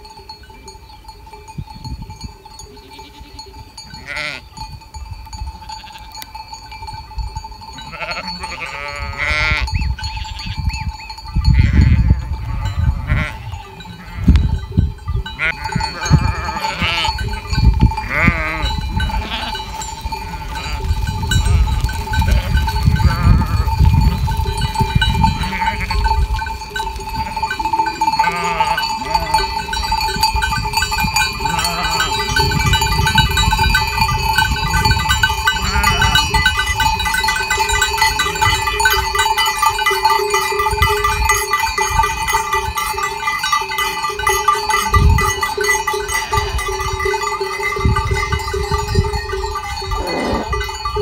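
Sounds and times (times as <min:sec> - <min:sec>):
sheep and goats bleating: 0:02.8 - 0:04.6, 0:05.6 - 0:06.3, 0:07.7 - 0:10.8, 0:11.4 - 0:34.1, 0:34.7 - 0:39.5, 0:42.4 - 0:47.6, 0:48.2 - 0:51.0.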